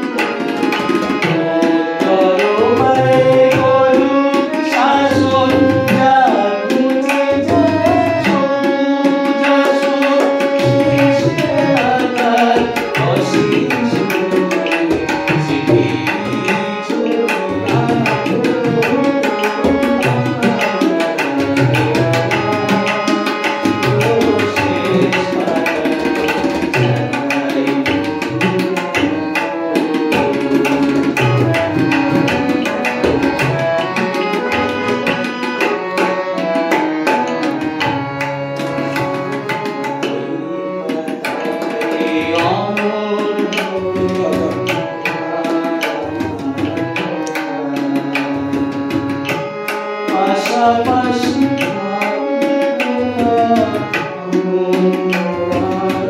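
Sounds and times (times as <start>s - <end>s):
harmonium chords: 0.0s - 56.0s
man singing: 0.0s - 56.0s
tabla rhythm: 0.0s - 56.0s.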